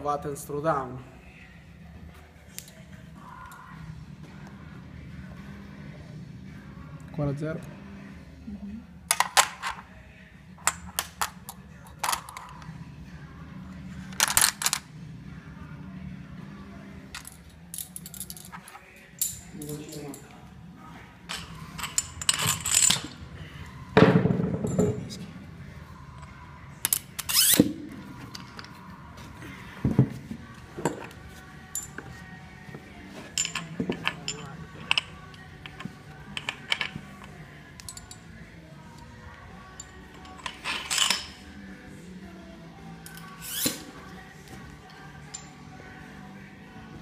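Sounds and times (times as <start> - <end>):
steady low hum: 0.0 - 47.0
metal and plastic collars clinking: 21.3 - 23.2, 33.3 - 38.3, 39.7 - 41.4.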